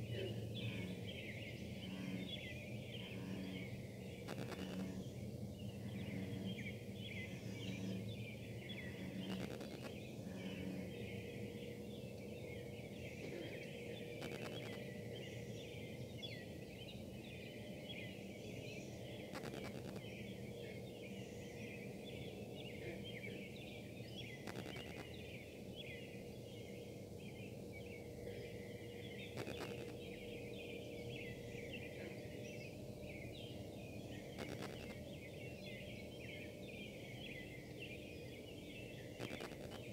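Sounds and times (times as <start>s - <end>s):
distant buzzing hum: 0.0s - 39.9s
interference clicks: 4.2s - 5.0s, 9.2s - 10.0s, 14.0s - 14.9s, 19.2s - 20.1s, 24.4s - 25.2s, 29.3s - 30.1s, 34.3s - 35.0s, 39.2s - 39.9s
dense high chirping: 34.4s - 35.0s.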